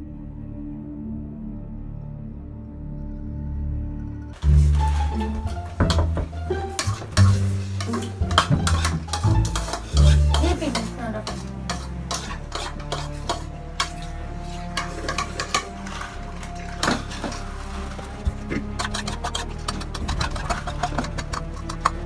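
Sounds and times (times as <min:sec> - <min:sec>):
forks clinking against bowls: 0:06.8 - 0:14.1, 0:14.8 - 0:17.4.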